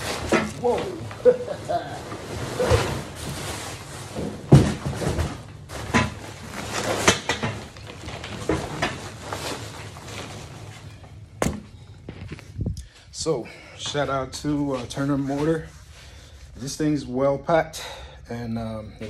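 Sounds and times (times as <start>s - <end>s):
pipe knocks and thumps: 4.1s - 6.2s.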